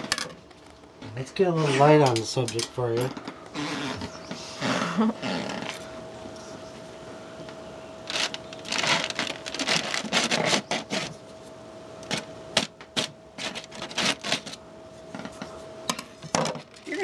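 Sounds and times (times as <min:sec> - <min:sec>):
faint steady hum: 0:00.0 - 0:17.0
knife tearing aluminium foil: 0:08.1 - 0:11.1.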